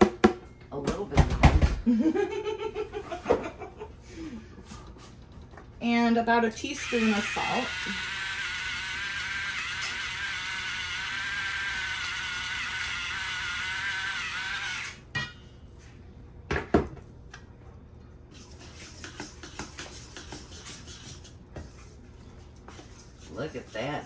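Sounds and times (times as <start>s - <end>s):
electric salt grinder whirring: 6.6s - 15.0s
whisk scraping metal bowl: 18.4s - 22.0s.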